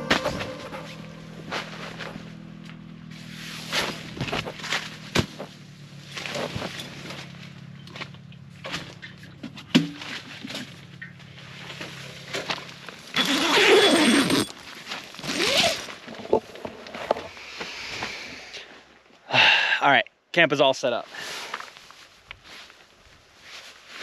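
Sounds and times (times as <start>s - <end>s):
low steady hum: 0.0s - 13.1s
tent fabric rustling: 11.4s - 16.2s, 21.2s - 24.0s
tent zipper pulled: 13.1s - 16.2s.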